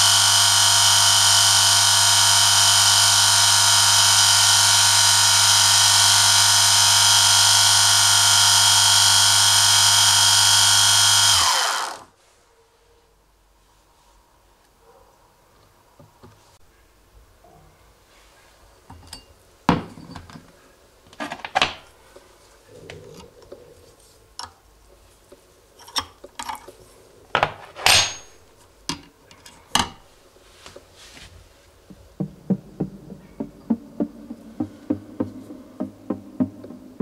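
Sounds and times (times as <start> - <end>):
steel fittings clinking and knocking: 25.8 - 26.8
spanner set down on table: 27.4 - 28.3.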